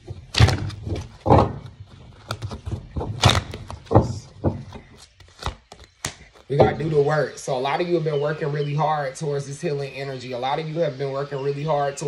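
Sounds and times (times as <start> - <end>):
cards being shuffled: 1.8 - 6.6.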